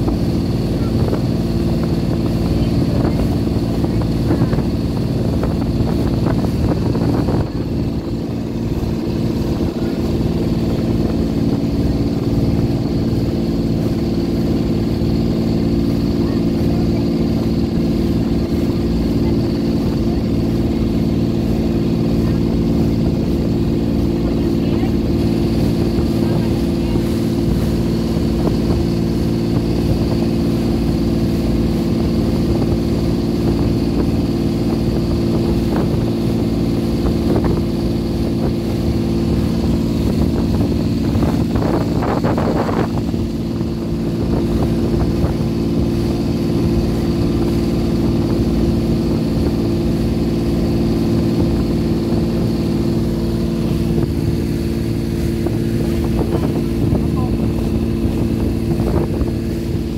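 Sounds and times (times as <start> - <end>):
motorboat engine running: 0.0 - 59.9
water rushing along hull: 0.0 - 59.9.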